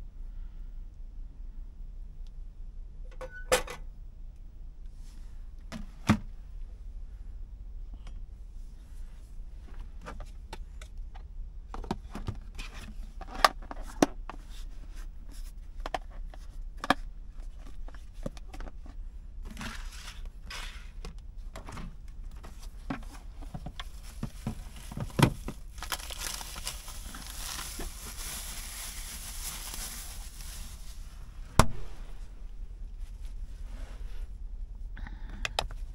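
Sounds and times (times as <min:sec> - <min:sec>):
packaging crinkling: 0:23.8 - 0:31.1.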